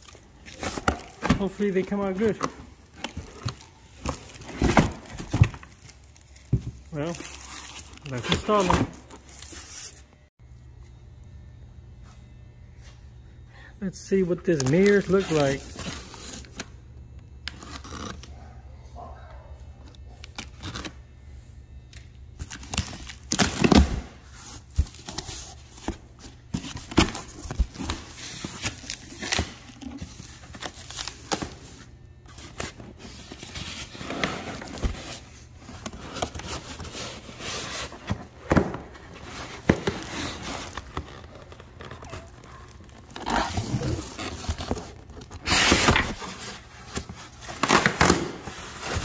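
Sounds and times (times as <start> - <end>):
plastic wrap crinkling: 39.2 - 49.0.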